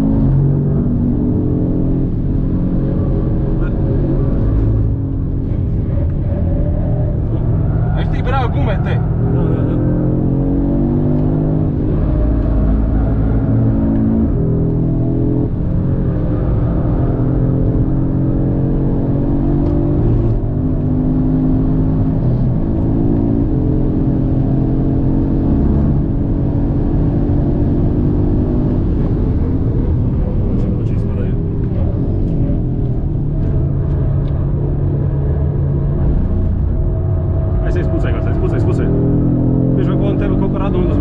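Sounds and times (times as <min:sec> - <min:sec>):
car engine revving hard: 0:07.2 - 0:30.0, 0:37.8 - 0:41.0
tyre and road rumble: 0:25.6 - 0:41.0.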